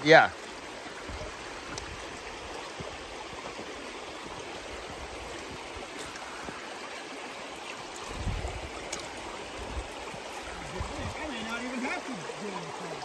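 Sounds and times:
river rushing over rocks: 0.0s - 13.0s.

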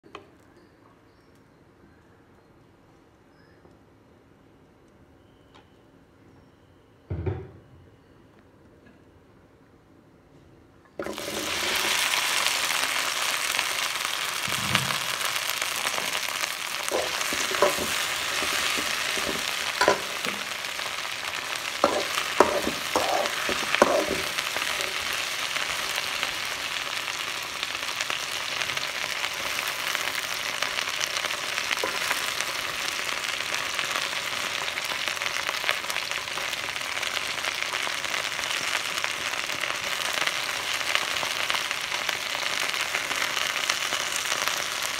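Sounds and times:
okra sizzling in hot oil: 11.0s - 44.9s
metal spoon scraping pan: 16.9s - 20.5s, 21.8s - 24.9s.

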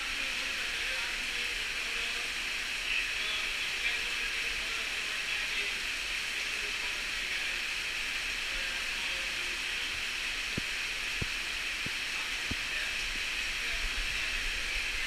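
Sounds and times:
water dripping and trickling: 8.0s - 14.4s.

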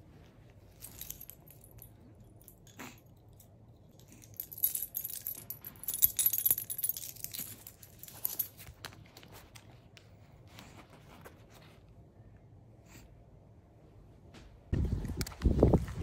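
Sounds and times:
keys jangling: 0.8s - 9.1s.

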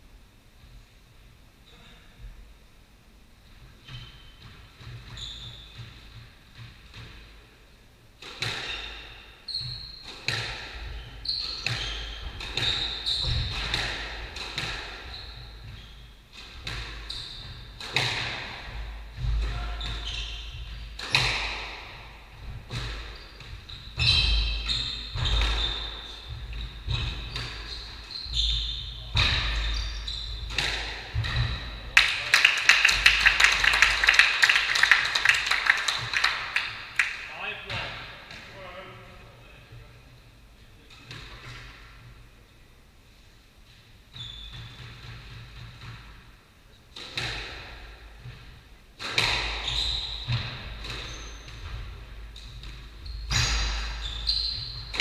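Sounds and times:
shoes squeaking on wooden floor: 3.8s - 6.2s, 8.6s - 13.8s, 15.0s - 17.8s, 19.2s - 21.3s, 22.7s - 31.9s, 44.2s - 44.8s, 49.5s - 52.0s, 52.9s - 55.0s
applause: 32.0s - 37.2s.

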